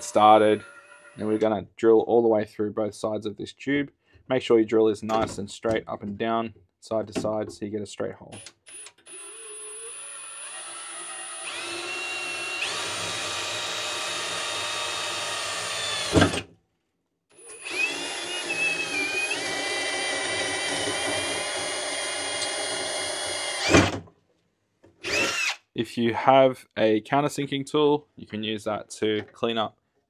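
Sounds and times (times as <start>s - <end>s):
cordless drill boring through metal: 0.0s - 1.4s, 8.4s - 16.4s, 17.4s - 23.9s, 25.0s - 25.6s.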